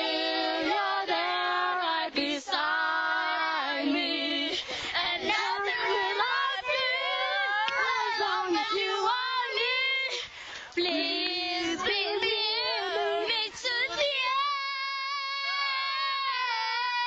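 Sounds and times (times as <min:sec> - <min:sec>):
young children singing: 0:00.0 - 0:17.0.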